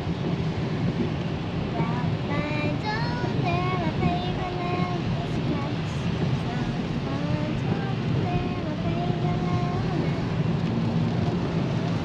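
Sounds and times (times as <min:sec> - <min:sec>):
road and engine noise inside car: 0:00.0 - 0:12.0.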